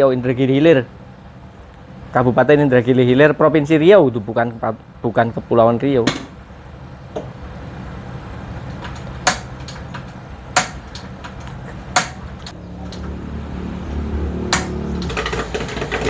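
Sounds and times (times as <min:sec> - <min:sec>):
gas burner rumble: 0:00.0 - 0:16.0
stirrer motor humming: 0:06.7 - 0:16.0.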